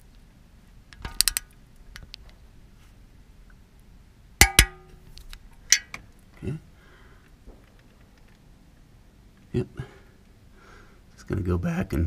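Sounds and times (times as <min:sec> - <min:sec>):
torque wrench clicks: 0:01.0 - 0:01.6.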